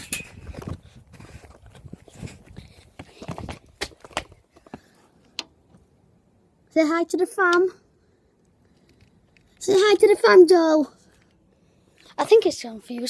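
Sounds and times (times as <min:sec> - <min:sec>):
footsteps: 0:00.0 - 0:05.1.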